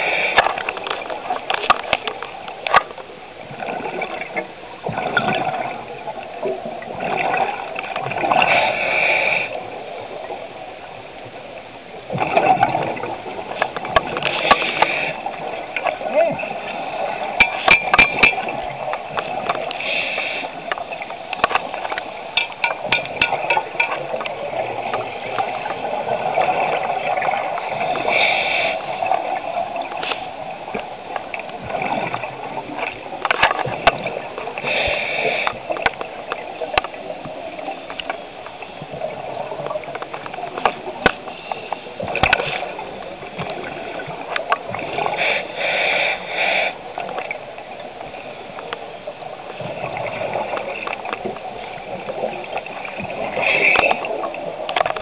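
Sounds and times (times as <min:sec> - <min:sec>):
bubbling of exhaled air: 0:12.1 - 0:38.0
regulator hissing breaths: 0:19.8 - 0:20.7, 0:27.9 - 0:29.0, 0:34.6 - 0:35.8, 0:45.0 - 0:47.0.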